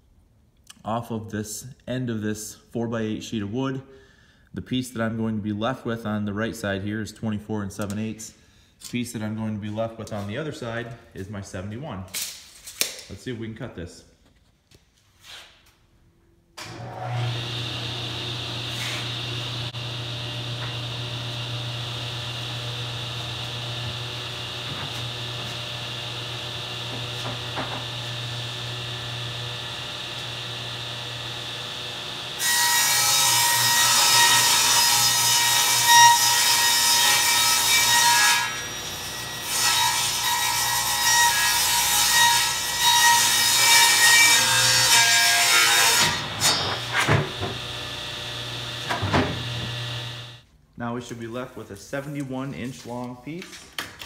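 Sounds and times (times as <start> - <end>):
table saw motor humming: 16.6 - 32.4, 45.9 - 50.4
saw blade cutting wood: 16.7 - 29.3, 32.4 - 50.4.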